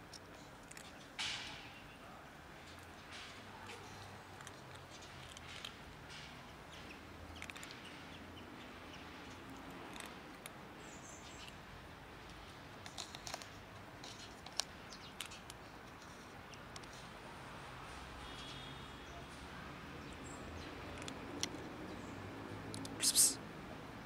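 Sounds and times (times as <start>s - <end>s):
cats crunching dry kibble: 0.0s - 1.2s, 2.5s - 6.1s, 7.3s - 8.0s, 9.2s - 16.1s, 20.7s - 21.8s.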